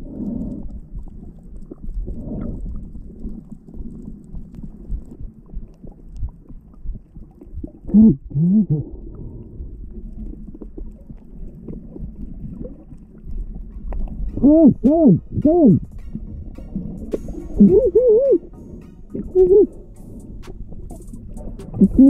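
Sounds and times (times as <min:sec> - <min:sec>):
faint underwater clicks: 0:00.0 - 0:22.0
underwater rumbling wash: 0:00.0 - 0:22.0.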